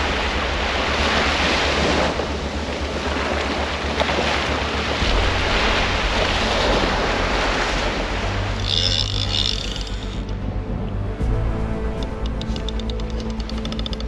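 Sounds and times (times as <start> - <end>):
surf washing up on sand: 0.0 - 10.3
wind rumbling on microphone: 0.0 - 14.0.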